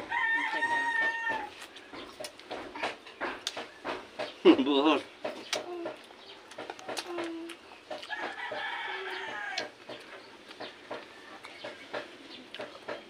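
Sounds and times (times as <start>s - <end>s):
rooster crowing: 0.0s - 1.6s, 8.0s - 9.8s
eating clicks and smacks: 1.6s - 4.6s, 5.2s - 8.6s, 9.5s - 13.0s.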